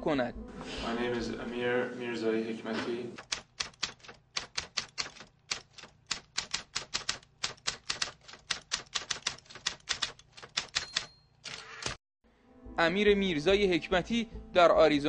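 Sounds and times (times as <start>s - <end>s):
typewriter keys clacking: 3.2s - 12.0s.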